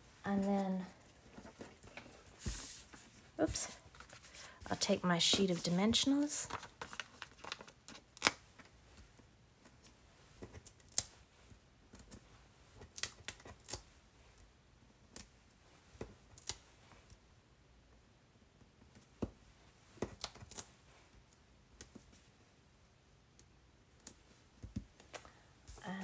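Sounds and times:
paper rustling: 1.2 - 9.0.

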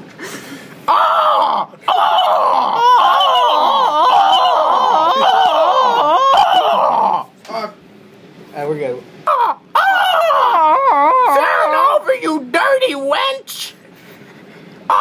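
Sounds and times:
person wailing and screaming: 0.9 - 7.3, 9.3 - 12.1.

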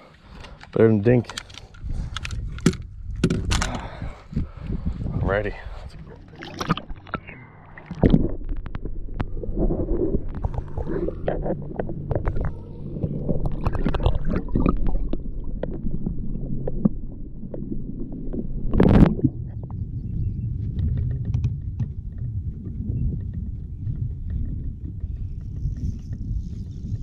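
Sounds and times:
water churning underwater: 5.6 - 27.0
small underwater clicks: 6.3 - 17.7, 20.7 - 27.0.

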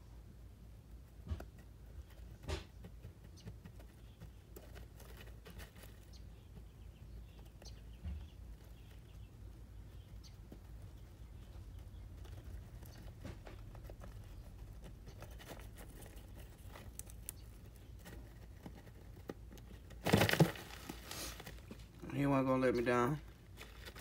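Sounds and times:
rodent rustling in bedding: 20.1 - 21.8.

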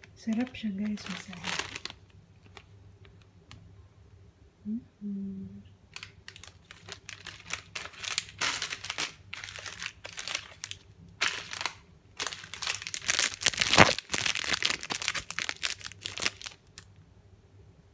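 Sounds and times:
plastic packaging crinkling: 0.0 - 3.3, 5.9 - 16.9.

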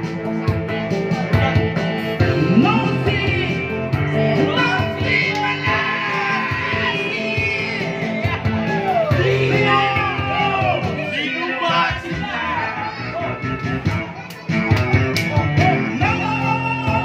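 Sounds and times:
backing track: 0.0 - 17.0
man singing into a microphone: 2.2 - 8.4, 9.1 - 12.5, 15.6 - 17.0.

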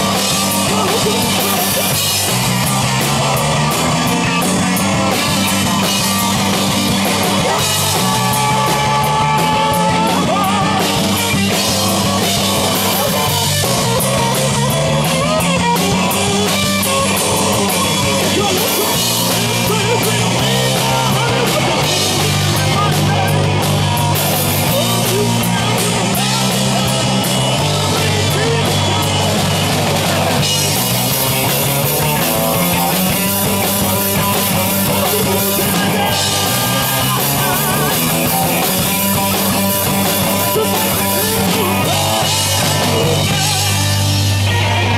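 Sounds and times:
bass line: 0.0 - 44.9
rock band playing live: 0.0 - 44.9.

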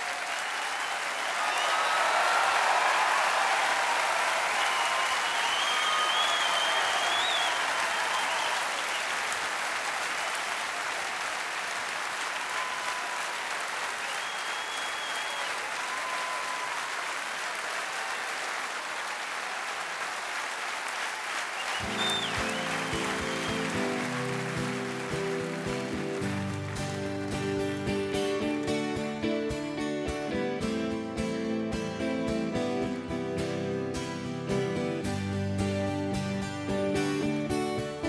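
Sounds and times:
audience applauding: 0.0 - 30.8
whistles: 0.7 - 2.0, 4.6 - 9.4, 12.5 - 16.9, 21.4 - 24.8
acoustic guitar playing: 21.8 - 38.0.

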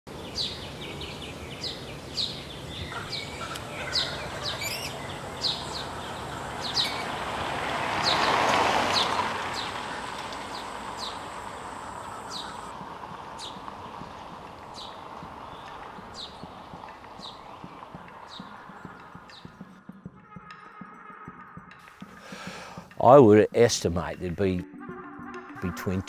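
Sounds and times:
steady background hiss: 0.1 - 8.0, 9.4 - 19.4
birds chirping: 0.1 - 20.6.

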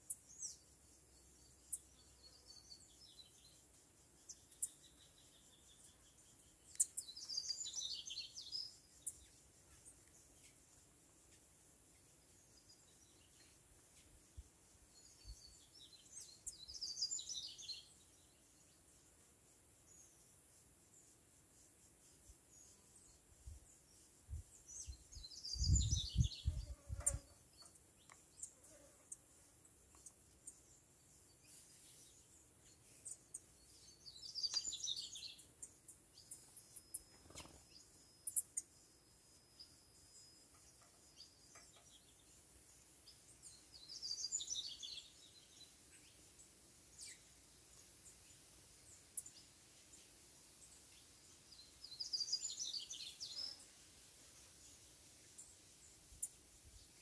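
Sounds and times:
songbird twittering: 0.0 - 10.8, 14.9 - 18.7, 22.6 - 28.5, 29.9 - 46.2, 51.5 - 53.6.

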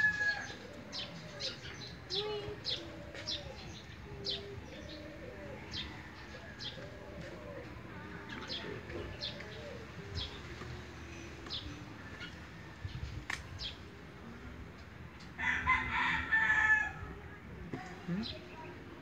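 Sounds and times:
small birds chirping: 0.0 - 14.1
rooster crowing: 15.4 - 17.0.

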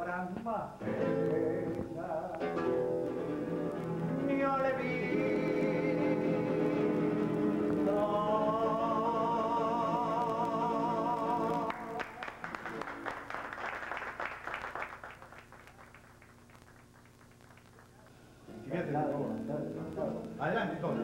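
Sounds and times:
man singing with vibrato: 0.0 - 12.3
acoustic guitars: 0.0 - 13.2, 17.3 - 21.0
group clapping: 11.2 - 18.2.

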